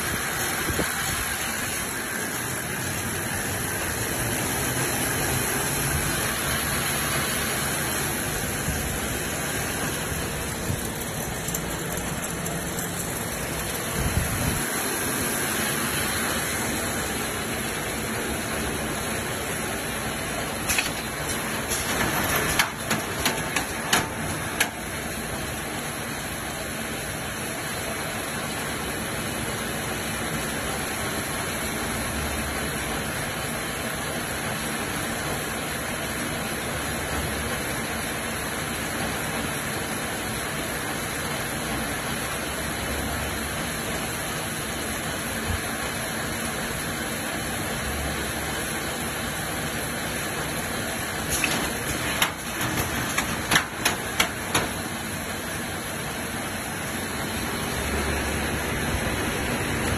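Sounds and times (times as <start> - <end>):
knitting machine running: 0.0 - 26.4, 48.2 - 59.9
sharp clicks and knocks: 20.6 - 24.9, 51.2 - 55.0.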